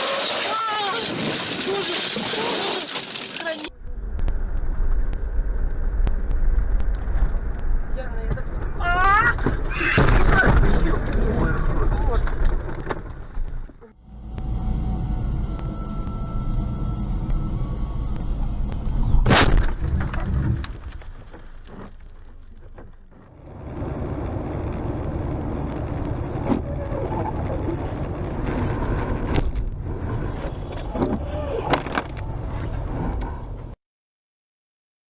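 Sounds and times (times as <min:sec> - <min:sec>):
car driving on highway: 0:03.8 - 0:10.0, 0:10.8 - 0:19.3, 0:21.7 - 0:33.8
car crash impact: 0:09.4 - 0:11.4, 0:19.2 - 0:23.2.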